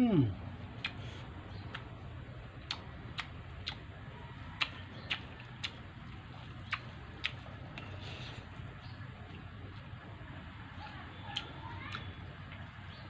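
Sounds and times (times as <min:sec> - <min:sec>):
low steady hum: 0:00.0 - 0:13.0
mouth smacks while chewing: 0:00.8 - 0:02.0, 0:02.6 - 0:03.9, 0:04.6 - 0:08.6.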